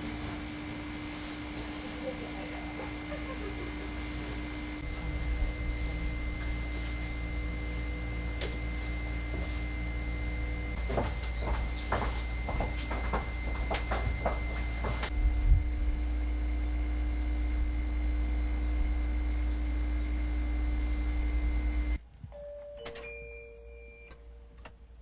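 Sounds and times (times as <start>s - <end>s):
high whine: 0.0s - 22.0s
low rumble: 4.8s - 8.3s.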